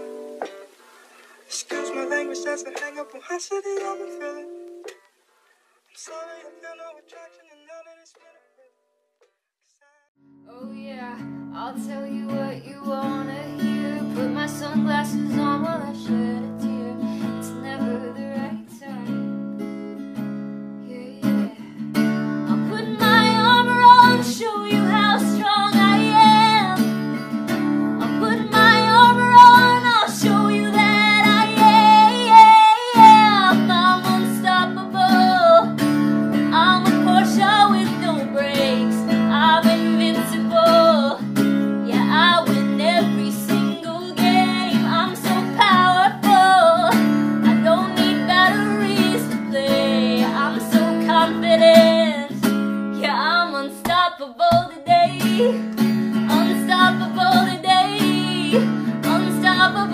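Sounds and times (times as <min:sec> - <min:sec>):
acoustic guitar: 0:00.0 - 0:08.5, 0:10.2 - 0:59.9
woman singing: 0:10.5 - 0:20.0, 0:20.8 - 0:21.7, 0:22.5 - 0:59.9.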